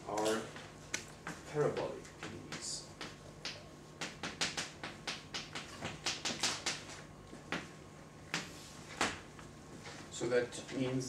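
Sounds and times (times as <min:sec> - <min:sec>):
chalk tapping and scraping on blackboard: 0:00.5 - 0:07.7, 0:08.3 - 0:09.2.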